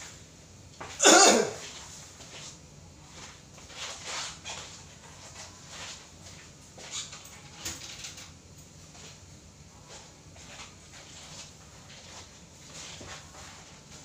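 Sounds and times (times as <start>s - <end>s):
clothing rustling: 8.8s - 14.0s.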